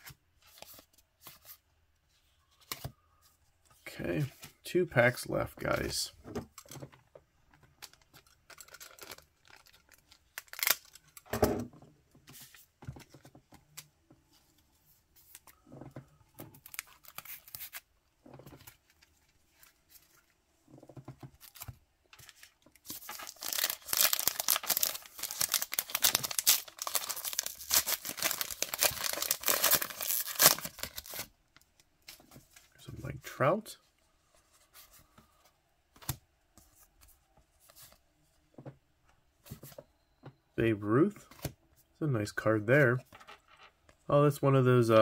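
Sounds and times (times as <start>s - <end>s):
wrapper tearing and crinkling: 7.9s - 11.2s, 22.9s - 31.3s
wrapper rustling and tapping: 18.2s - 31.2s.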